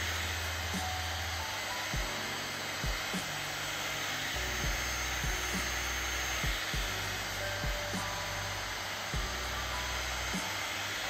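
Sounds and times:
heat gun blowing air: 0:00.0 - 0:11.0
music with bass and kick drum: 0:01.9 - 0:02.2, 0:02.8 - 0:03.3, 0:04.5 - 0:10.5.

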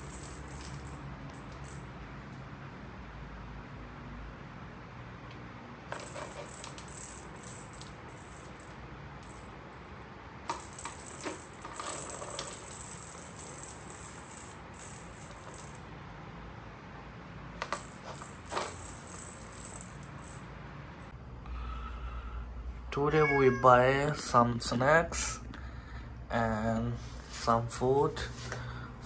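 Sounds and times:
balls jingling in plastic toy track: 0:00.0 - 0:01.8, 0:05.9 - 0:09.5, 0:10.5 - 0:15.8, 0:17.6 - 0:20.4.

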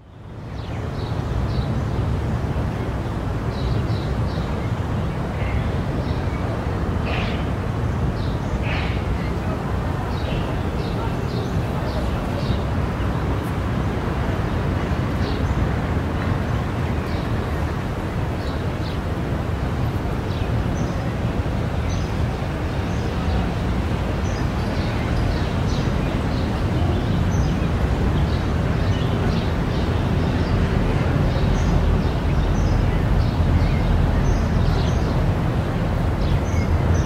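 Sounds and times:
traffic rumble: 0:00.0 - 0:37.0
birds chirping: 0:03.5 - 0:13.2.

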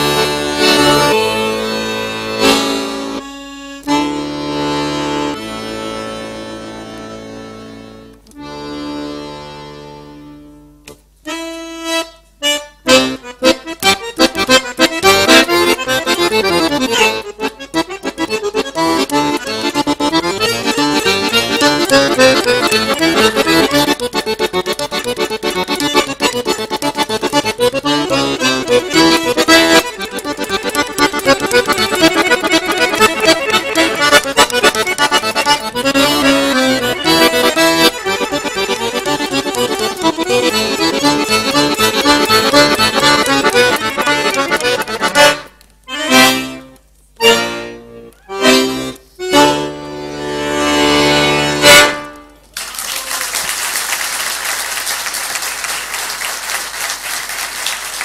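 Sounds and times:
accordion playing: 0:00.0 - 0:58.0
applause: 0:52.5 - 0:58.0.

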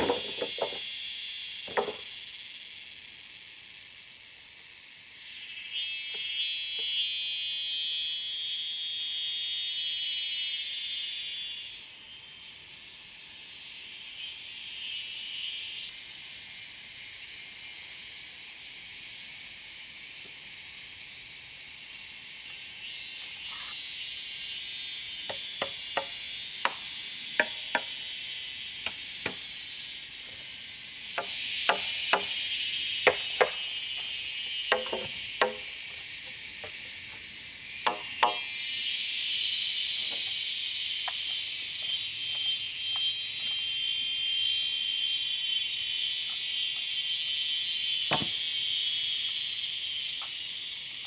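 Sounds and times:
wooden poles clacking: 0:00.0 - 0:00.8, 0:34.7 - 0:35.7
insects buzzing chorus: 0:00.0 - 0:51.0.

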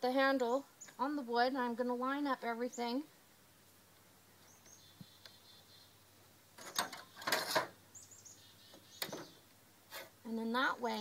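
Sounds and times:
faint bird chirps: 0:04.4 - 0:06.1, 0:07.9 - 0:09.5
tools handling noise: 0:06.6 - 0:07.7.

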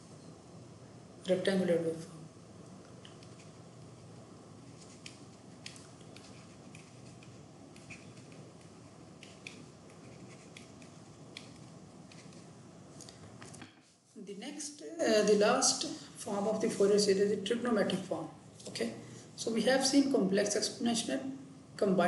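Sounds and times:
steady low hiss: 0:00.0 - 0:22.0.

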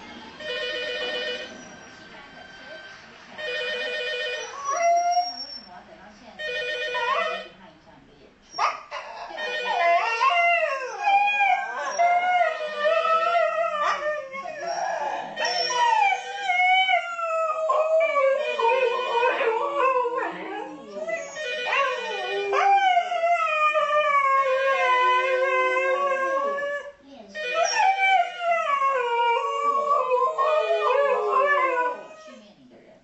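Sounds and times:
dogs howling: 0:09.0 - 0:32.4.

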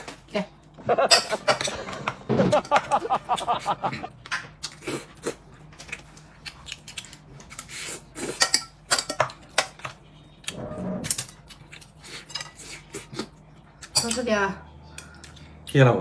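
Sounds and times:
utensils clinking against dishes: 0:00.9 - 0:04.8, 0:06.9 - 0:10.0, 0:11.0 - 0:15.4.

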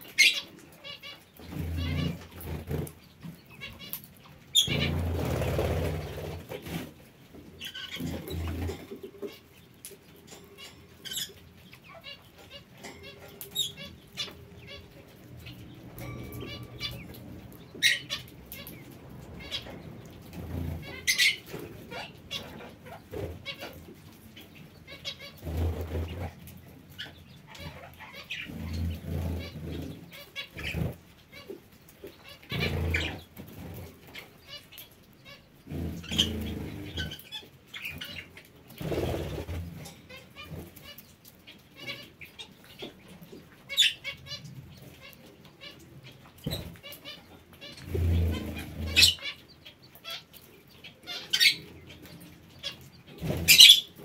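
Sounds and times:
parakeets chirping and squawking: 0:00.0 - 0:54.0.

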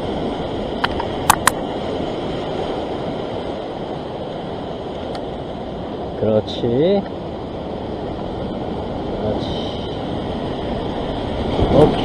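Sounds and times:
surf washing over rocks: 0:00.0 - 0:12.0
sharp clicks: 0:00.8 - 0:01.6.

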